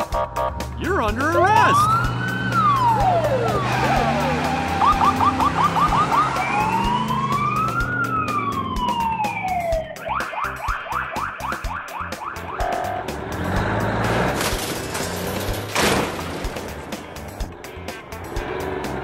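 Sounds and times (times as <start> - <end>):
police siren wailing and yelping: 1.1 - 13.0.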